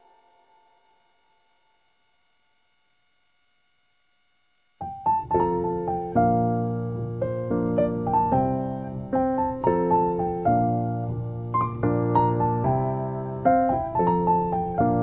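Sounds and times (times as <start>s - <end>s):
gentle piano music: 4.8s - 15.0s.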